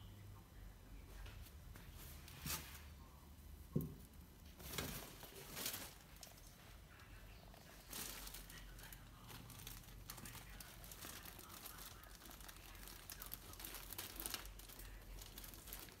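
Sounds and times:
fabric tunnel rustling: 4.5 - 6.6, 7.5 - 16.0.

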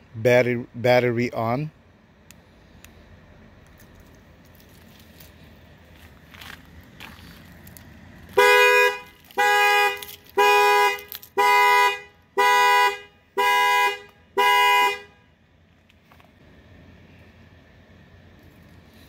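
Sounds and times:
car horn alarm sounding: 8.3 - 15.3.

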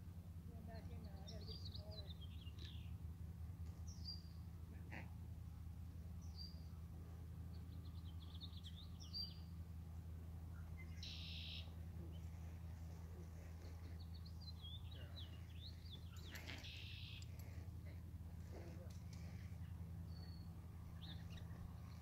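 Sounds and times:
faint steady low hum: 0.0 - 22.0
songbirds chirping and trilling: 0.0 - 22.0
buzzy bird trill: 10.8 - 11.8, 14.1 - 17.4.

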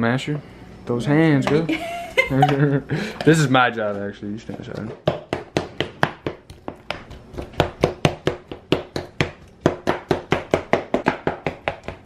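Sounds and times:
utensil mashing in a bowl: 3.2 - 12.0.

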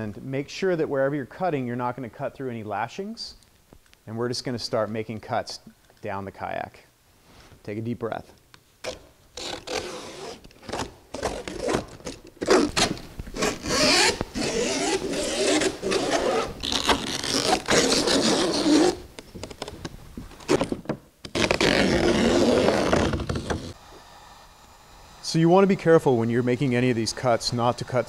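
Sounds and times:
utility knife slicing fabric: 8.9 - 19.0.

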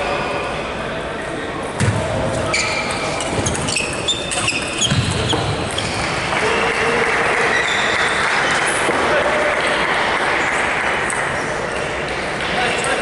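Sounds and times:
shoes squeaking on floor: 2.3 - 6.2, 7.5 - 8.2.

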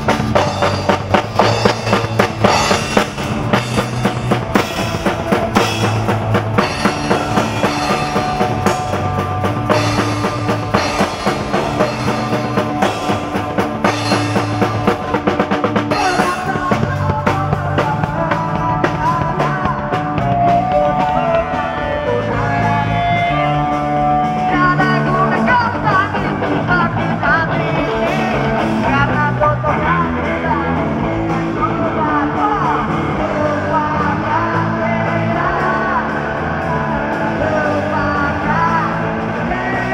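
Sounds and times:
drum kit rapid hits: 0.0 - 21.5
person singing: 0.0 - 39.9
punk rock band playing live: 0.0 - 39.9.

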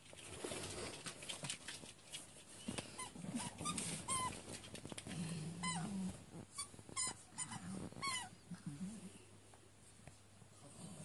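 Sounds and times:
small dogs play-growling: 2.6 - 9.2
dog whining: 5.6 - 8.4.

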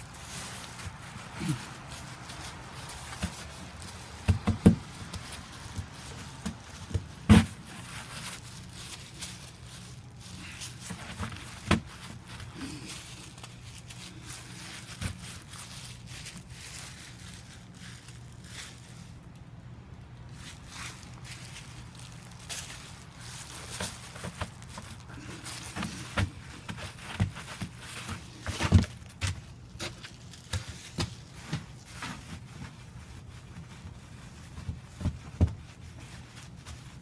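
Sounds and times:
hand scooping and packing snow: 0.0 - 19.3, 20.2 - 37.0
low steady hum: 0.0 - 37.0.

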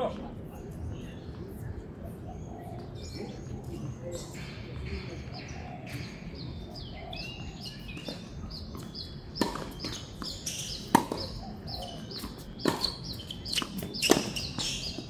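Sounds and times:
bird chirping: 2.3 - 15.0
tennis ball impacts: 8.8 - 15.0.

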